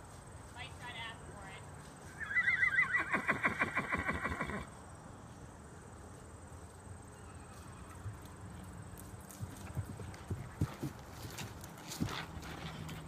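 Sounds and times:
horse whinnying: 2.2s - 4.7s
faint hoof thuds: 7.5s - 13.0s.

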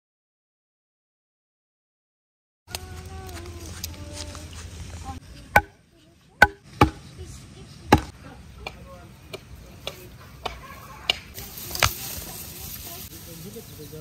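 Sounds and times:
sharp knocks: 6.4s - 7.0s.

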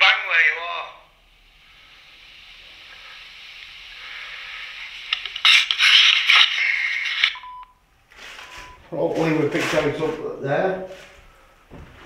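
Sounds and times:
recorder playback hiss: 0.0s - 12.0s
handling scraping and rustling: 8.1s - 10.3s
short beep: 8.4s - 8.9s.

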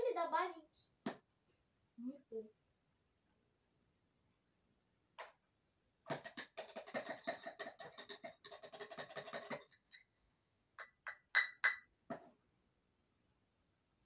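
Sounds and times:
plastic toy pieces scraping and rattling: 6.1s - 10.0s.

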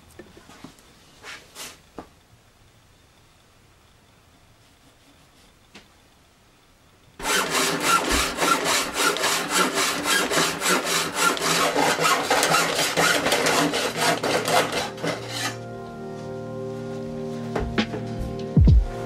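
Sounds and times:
hacksaw cutting metal sheet: 7.2s - 15.6s.

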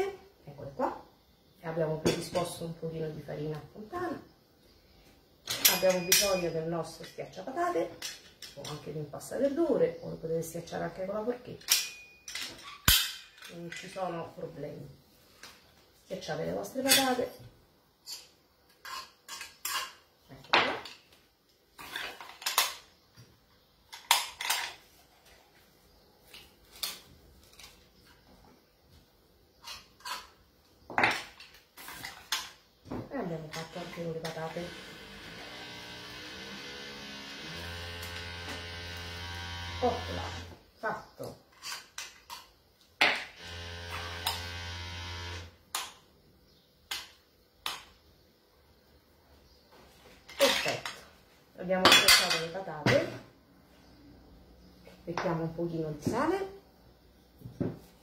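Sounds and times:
steady electric buzz: 33.6s - 40.6s, 43.3s - 45.6s.

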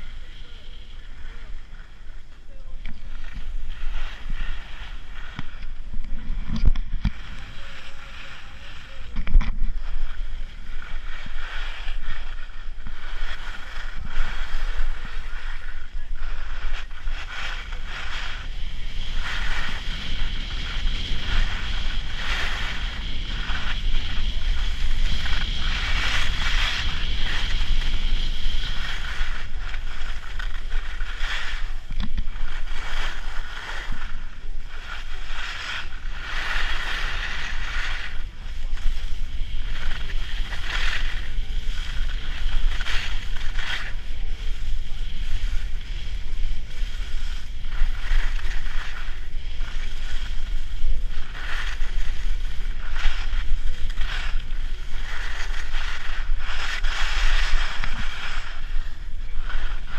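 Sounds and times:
skis carving on snow: 0.0s - 59.9s
wind rumble on microphone: 0.0s - 59.9s.

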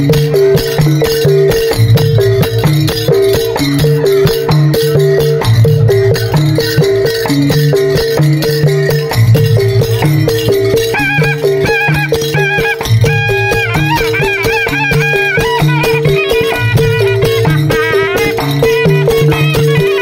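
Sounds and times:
fast percussion beat: 0.0s - 20.0s.

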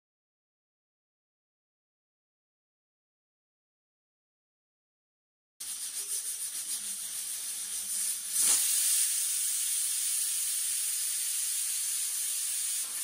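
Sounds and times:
pressure cooker whistle hissing: 5.6s - 13.0s.

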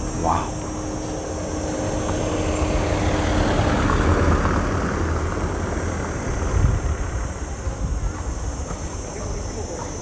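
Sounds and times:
outdoor street noise: 0.0s - 10.0s
wind buffeting microphone: 1.4s - 9.0s.

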